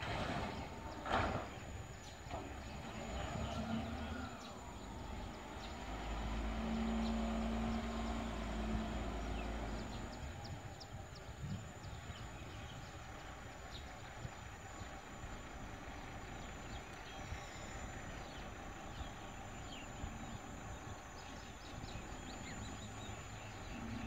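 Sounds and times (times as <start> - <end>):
distant diesel engine humming: 0.0 - 24.0.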